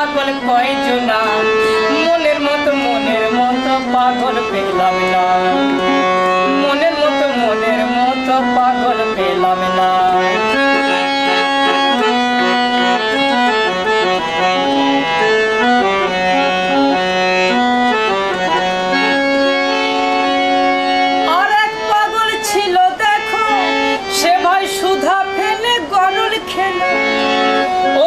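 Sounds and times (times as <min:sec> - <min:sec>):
harmonium playing folk melody: 0:00.0 - 0:28.0.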